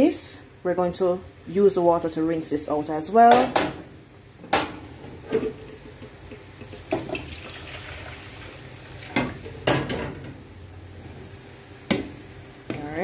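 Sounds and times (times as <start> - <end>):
hot water pouring into pot: 5.8 - 9.7.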